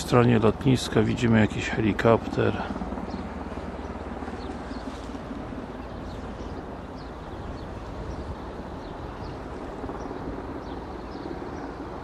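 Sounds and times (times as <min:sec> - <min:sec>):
low outdoor rumble: 0:00.0 - 0:12.0.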